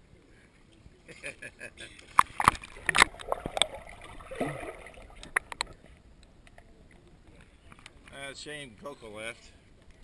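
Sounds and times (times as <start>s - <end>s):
water lapping: 2.0s - 6.0s
water splashing and sloshing: 2.0s - 7.5s.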